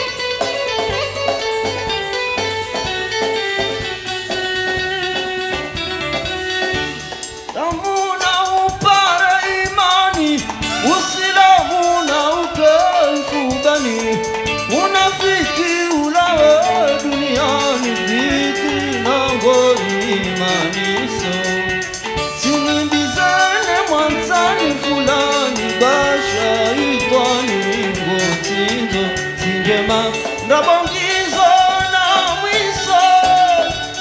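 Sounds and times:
live band playing: 0.0 - 34.0
man singing ornamented notes: 7.5 - 34.0.

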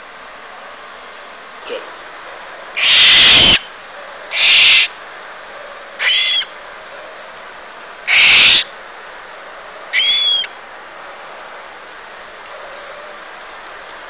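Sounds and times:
parrot chick screeching: 2.8 - 3.6, 4.3 - 5.0, 6.0 - 6.5, 8.1 - 8.7, 9.9 - 10.5.

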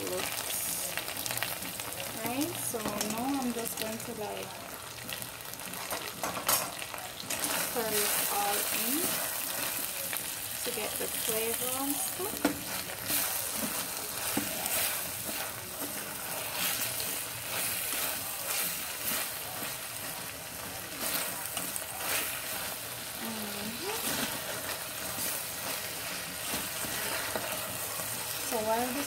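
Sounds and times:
food sizzling in pot: 0.0 - 29.0
spatula scraping pot: 11.8 - 29.0.

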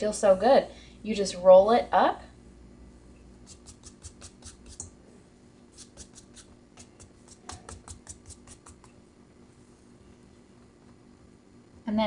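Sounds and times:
steady low hum: 0.0 - 12.0
hands patting bread dough: 3.5 - 4.8, 5.8 - 9.0.

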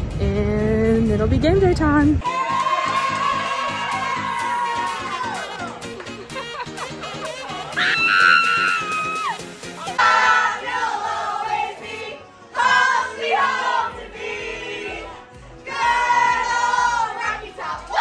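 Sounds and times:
women singing together: 10.0 - 18.0.

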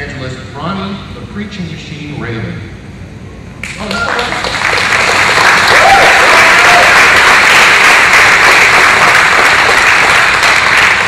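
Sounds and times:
audience applauding: 3.6 - 11.0.

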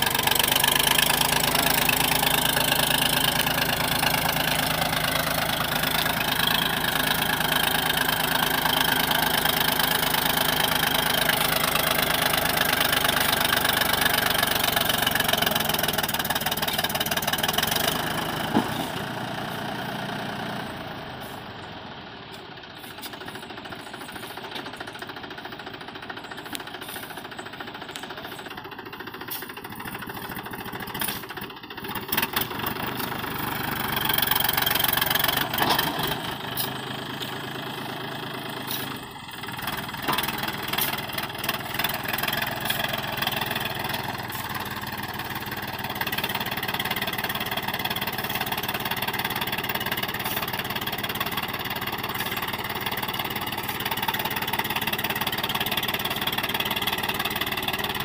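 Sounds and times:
diesel tractor engine under load: 0.0 - 58.0.

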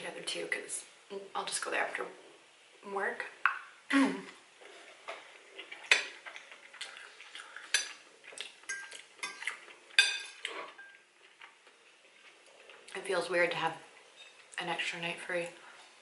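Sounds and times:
fork clinking on ceramic bowl: 8.7 - 11.0.

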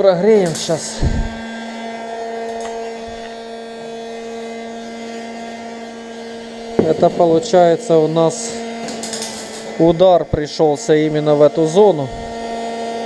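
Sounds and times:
heat gun fan humming: 0.0 - 13.0
knock: 6.8 - 7.4.

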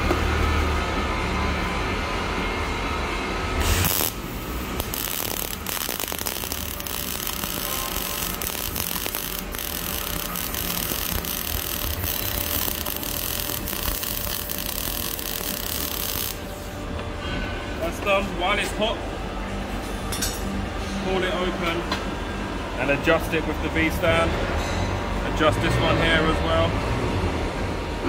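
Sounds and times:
welding arc crackling and sizzling: 3.6 - 16.8.

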